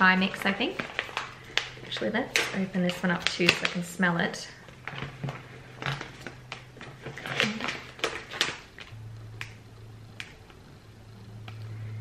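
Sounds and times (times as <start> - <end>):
plastic pouch crinkling: 0.0 - 3.9, 4.5 - 9.6
low steady hum: 0.0 - 12.0.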